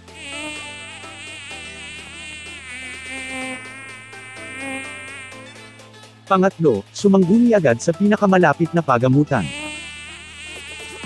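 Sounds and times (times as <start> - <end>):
mosquito whining buzz: 0.0 - 6.2, 9.3 - 11.0.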